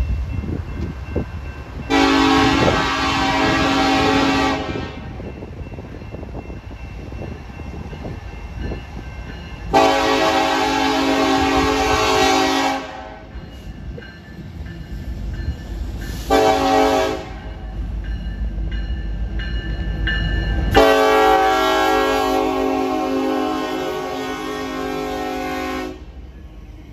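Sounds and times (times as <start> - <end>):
diesel locomotive engine rumble: 0.0 - 26.9
locomotive horn blasts: 1.9 - 5.2, 9.7 - 13.3, 16.3 - 17.6, 20.7 - 26.2.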